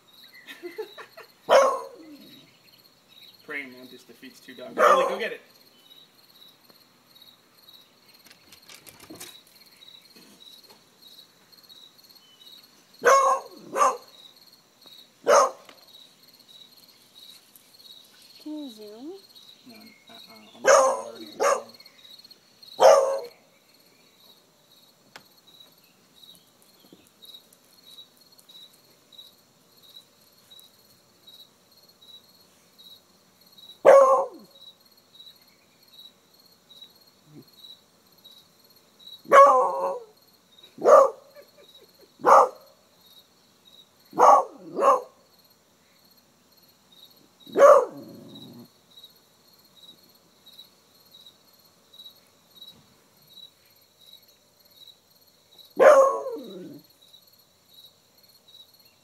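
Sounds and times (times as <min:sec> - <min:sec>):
dog barking: 0:01.5 - 0:02.1, 0:04.7 - 0:05.4, 0:13.0 - 0:14.1, 0:15.2 - 0:15.7, 0:20.6 - 0:21.8, 0:22.8 - 0:23.4, 0:33.8 - 0:34.5, 0:39.3 - 0:40.2, 0:40.8 - 0:41.4, 0:42.2 - 0:42.7, 0:44.2 - 0:45.2, 0:47.5 - 0:48.3, 0:55.8 - 0:56.8.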